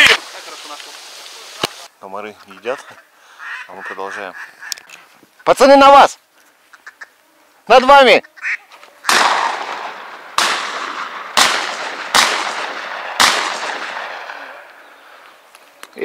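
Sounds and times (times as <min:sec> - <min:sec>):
shotgun shots with rolling echo: 0:09.1 - 0:14.7.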